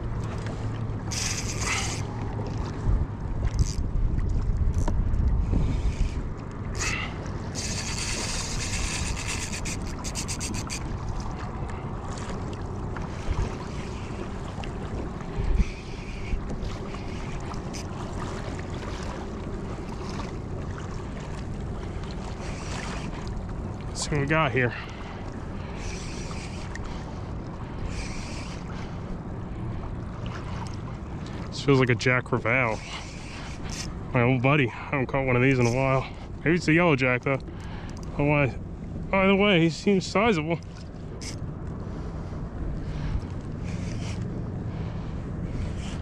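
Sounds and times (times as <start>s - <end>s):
wind buffeting microphone: 0.0s - 26.2s
water around a kayak: 0.0s - 46.0s
fishing reel ticking rasp: 1.0s - 2.1s, 3.5s - 3.8s, 6.8s - 10.9s, 15.5s - 17.9s, 22.4s - 23.1s, 25.7s - 27.0s, 27.8s - 28.9s, 32.6s - 34.0s, 41.2s - 41.4s, 43.6s - 44.3s.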